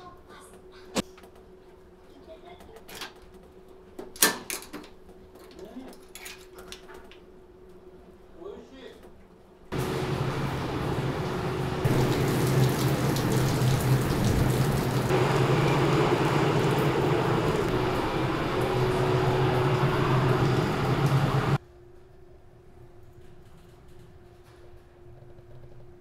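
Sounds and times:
low steady hum: 9.5 - 23.4
heavy rain and wind: 9.8 - 21.6.

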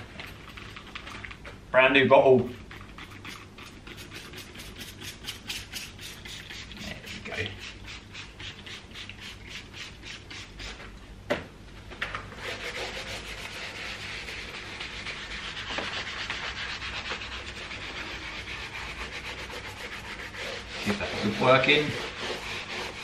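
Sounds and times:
spray bottle spraying: 2.7 - 10.8
scrubbing rub on carpet: 12.4 - 23.0.

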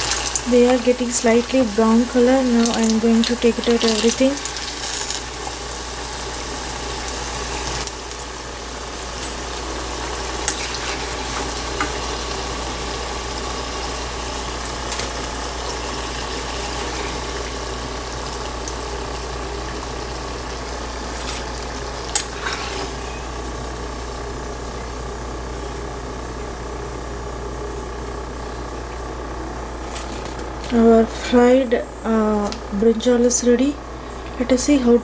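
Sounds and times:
food sizzling in hot oil: 0.0 - 24.6.

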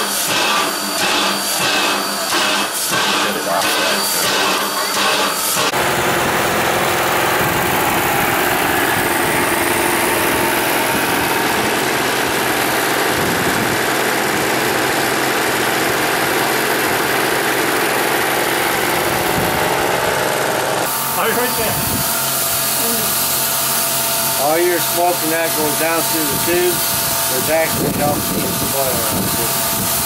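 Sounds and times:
steam locomotive hissing: 0.0 - 5.9, 20.9 - 30.0.

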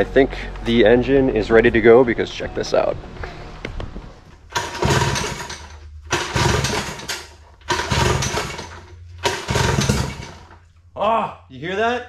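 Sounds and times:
outboard motor cranking rattle: 4.5 - 10.6
recoil starter cord yanks: 4.5 - 10.6.

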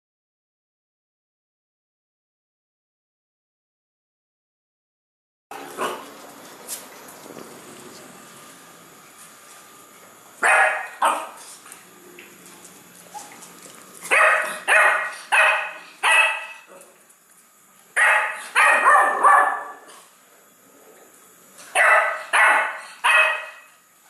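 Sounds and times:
puppy barking: 5.6 - 6.1, 10.4 - 11.4, 14.0 - 16.8, 18.0 - 20.0, 21.7 - 23.7.

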